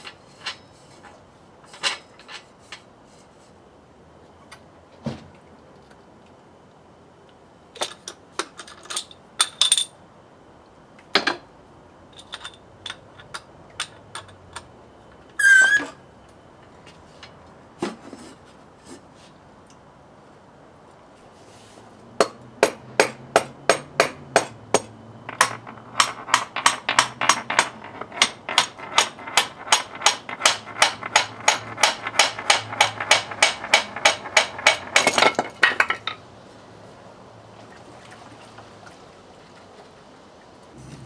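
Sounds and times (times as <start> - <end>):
hand hammer striking: 22.2 - 35.1.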